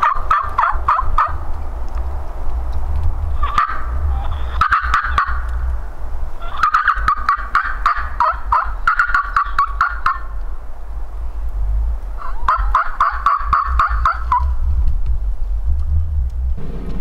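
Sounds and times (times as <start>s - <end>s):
turkey gobbling: 0.0s - 1.4s, 3.4s - 5.6s, 6.4s - 10.4s, 12.2s - 14.6s
wind rumble on microphone: 0.0s - 17.0s.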